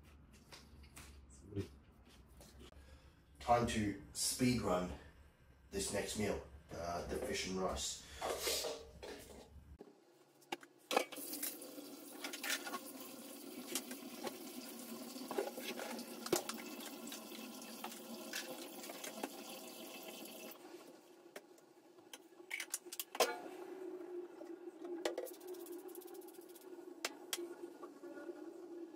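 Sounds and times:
water running from tap: 0:11.1 - 0:20.6.

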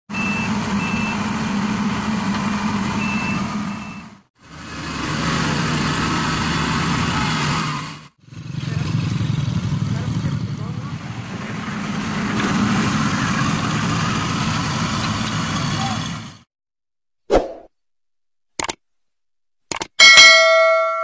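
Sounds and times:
diesel engine running: 0:00.1 - 0:16.5.

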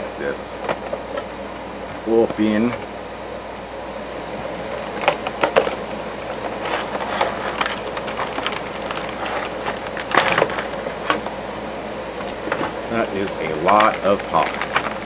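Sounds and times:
packaging rustling and crinkling: 0:04.7 - 0:11.2, 0:12.3 - 0:15.0.

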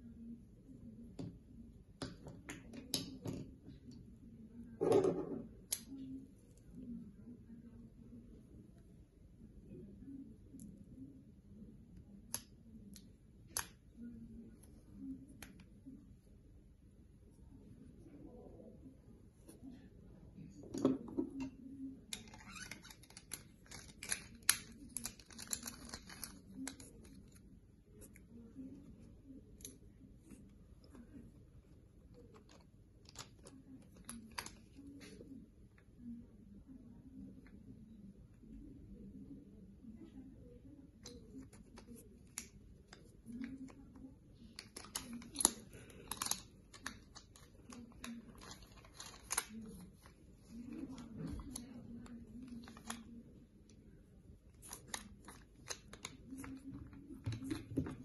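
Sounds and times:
plastic parts clicking and rattling: 0:44.6 - 0:49.8.

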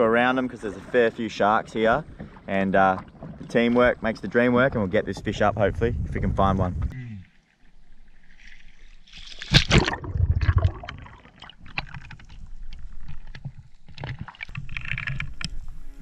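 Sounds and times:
underwater gurgling: 0:07.6 - 0:15.6
water splash: 0:07.7 - 0:15.6.

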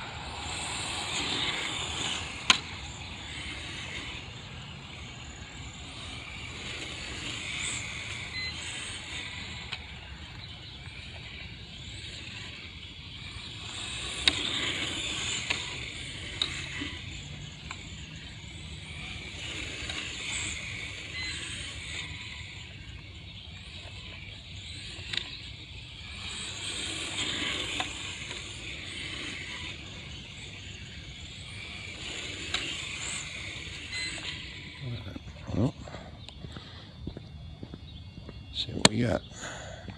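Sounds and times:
tyre hiss on asphalt: 0:00.0 - 0:04.8
sharp ticks: 0:00.0 - 0:24.0, 0:24.6 - 0:37.4
electric motor whine: 0:00.0 - 0:39.9.

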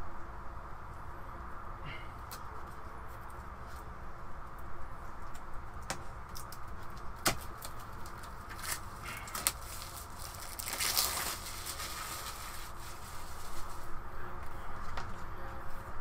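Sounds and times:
papery rustle: 0:07.4 - 0:14.0.

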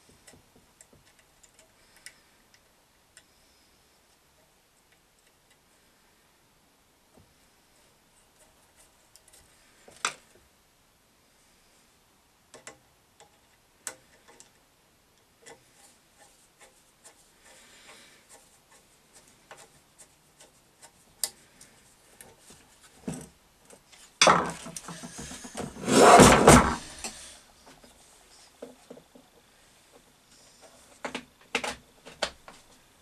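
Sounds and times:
heavy grinder scraping on workbench: 0:24.3 - 0:27.3.

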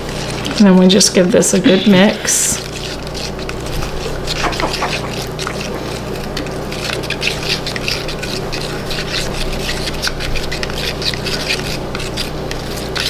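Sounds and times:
liquid swishing in container: 0:00.0 - 0:13.0.

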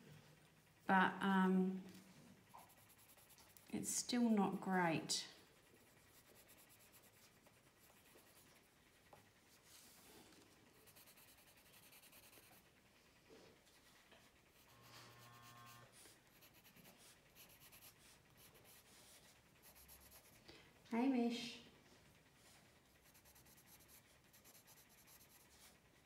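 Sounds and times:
pencil scratching on paper: 0:02.5 - 0:03.7, 0:05.8 - 0:08.7, 0:10.8 - 0:12.7, 0:14.5 - 0:20.4, 0:23.0 - 0:25.8.

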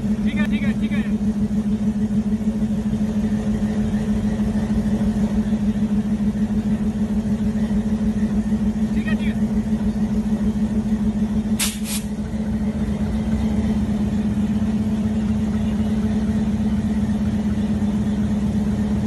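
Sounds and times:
diesel locomotive engine droning: 0:00.0 - 0:19.0
short bursts of hiss: 0:11.6 - 0:12.1.

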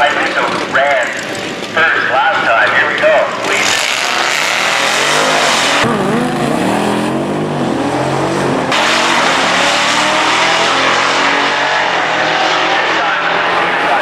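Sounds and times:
motorcycle engine revving: 0:03.6 - 0:13.4
muscle car engine revving: 0:03.6 - 0:14.0.

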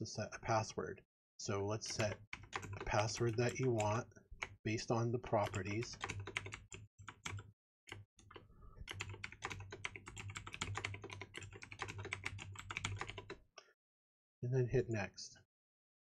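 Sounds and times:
keyboard typing: 0:01.7 - 0:13.4.

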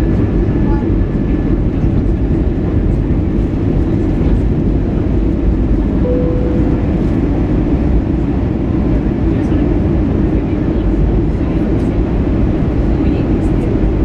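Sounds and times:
aircraft cabin rumble: 0:00.0 - 0:14.0
short steady tone: 0:06.0 - 0:07.3.

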